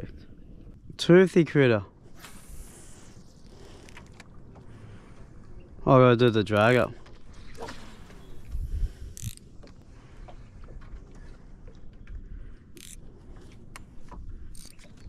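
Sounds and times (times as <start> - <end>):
short hisses: 2.2 - 3.8
fishing reel clicking: 9.1 - 9.5, 12.8 - 13.0, 14.5 - 15.0.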